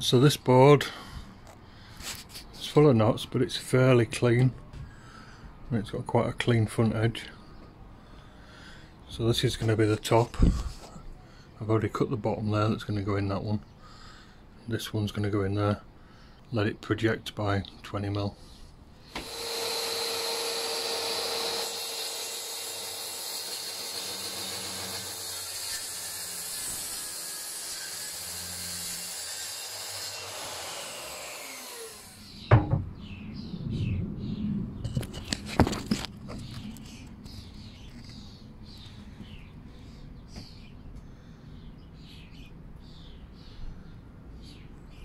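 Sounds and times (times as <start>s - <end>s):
circular saw cutting wood: 19.1s - 32.4s.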